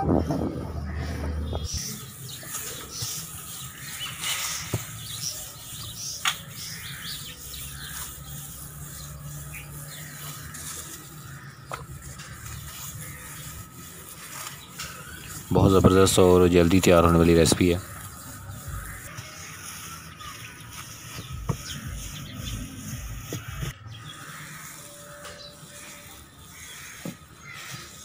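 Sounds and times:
rolling pin rolling dough: 1.7 - 23.8.

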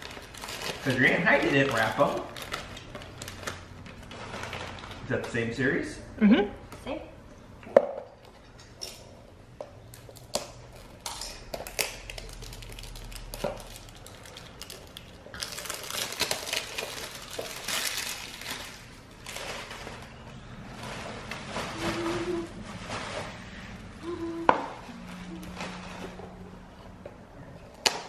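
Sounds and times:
crinkly rustling: 0.0 - 5.5, 11.6 - 23.8, 24.9 - 26.5.

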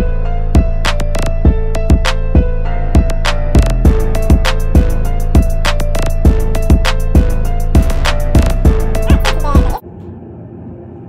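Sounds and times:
sustained synth melody: 0.0 - 9.8
heavy kick drum hits: 1.4 - 5.6, 6.3 - 9.8.

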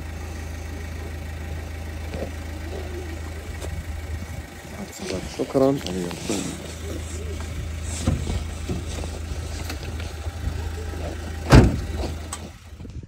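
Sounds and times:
van engine idling: 0.0 - 13.0
vehicle door thudding shut: 8.0 - 8.9, 11.4 - 12.4.

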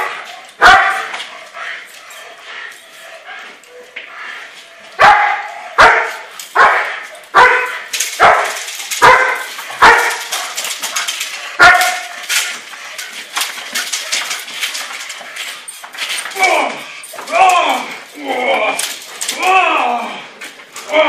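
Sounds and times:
dog barking loudly: 0.0 - 1.2, 5.0 - 10.6, 11.6 - 12.2.

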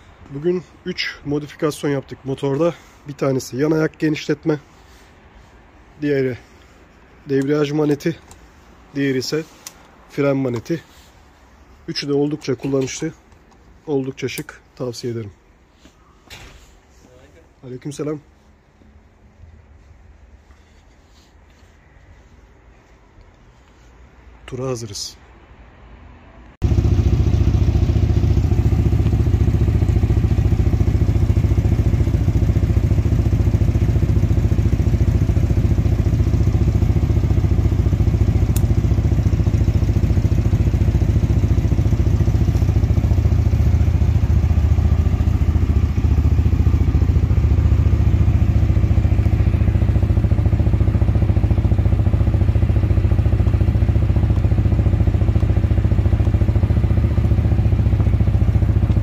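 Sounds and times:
motorcycle engine running: 26.6 - 59.0.

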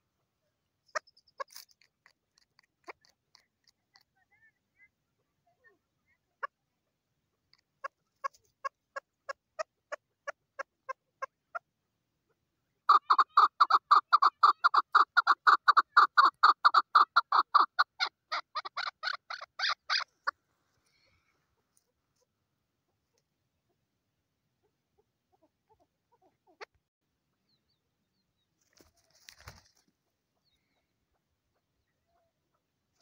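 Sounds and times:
partridge clucking calls: 0.9 - 4.1, 7.4 - 11.7, 12.9 - 20.4.

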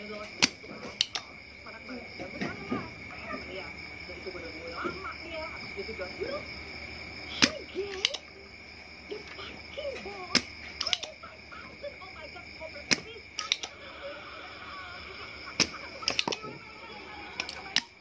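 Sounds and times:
sharp clicks and taps: 0.4 - 1.3, 10.3 - 11.2, 12.9 - 13.8.

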